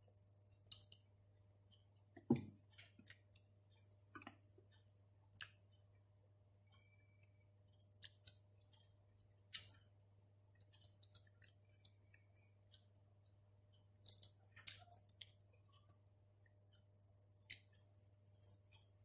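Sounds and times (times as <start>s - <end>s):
pizza being bitten and chewed: 6.6s - 19.0s.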